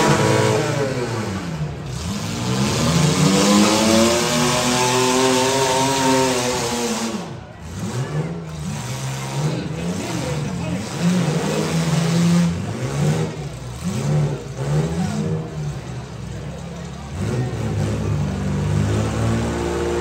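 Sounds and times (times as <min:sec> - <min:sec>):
car engines revving hard: 0:00.0 - 0:20.0.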